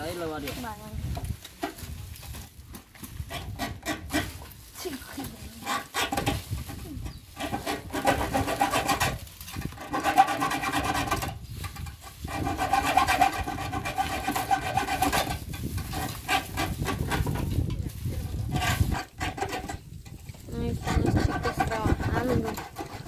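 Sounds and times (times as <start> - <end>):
hacksaw cutting metal: 3.2 - 4.4, 5.6 - 6.4, 7.3 - 17.5, 18.4 - 19.9, 20.6 - 23.0.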